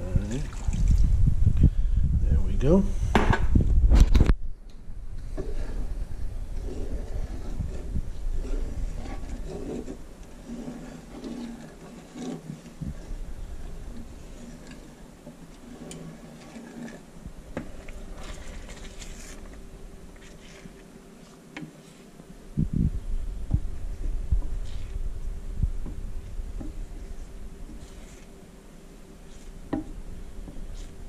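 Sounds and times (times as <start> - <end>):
low thumps and rumbles: 0.8 - 2.4, 3.1 - 9.0, 22.5 - 27.8
wooden spoon scraping a skillet: 5.2 - 22.2, 23.8 - 25.2, 25.8 - 31.0.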